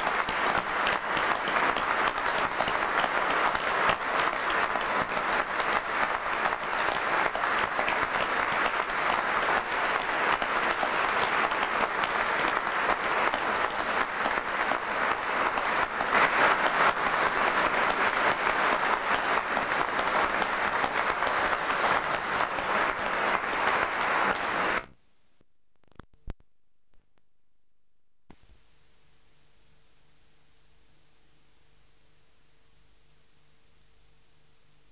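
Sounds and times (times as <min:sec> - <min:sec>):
audience applauding: 0:00.0 - 0:24.9.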